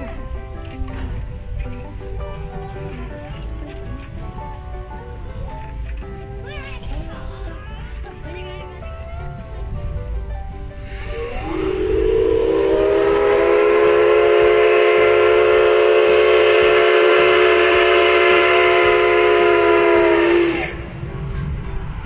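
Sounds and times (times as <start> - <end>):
steam locomotive whistle: 10.8 - 21.0.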